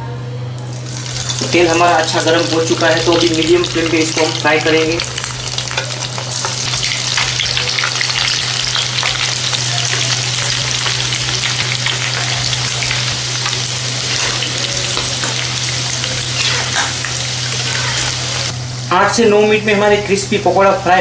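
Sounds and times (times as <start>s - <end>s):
batter sizzling in hot oil: 0.8s - 20.6s.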